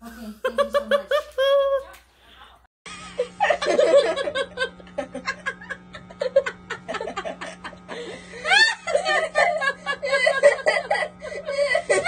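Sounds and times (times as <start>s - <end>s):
faint steady hum: 2.2s - 12.0s
people laughing and snickering: 2.9s - 12.0s.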